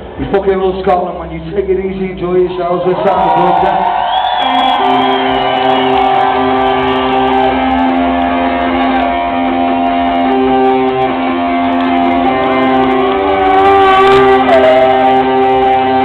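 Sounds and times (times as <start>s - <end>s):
live rock band playing: 4.4s - 16.0s.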